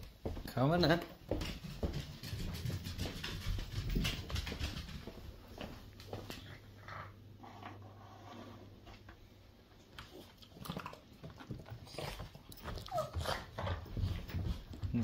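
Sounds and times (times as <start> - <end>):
dog whining: 12.7 - 13.8.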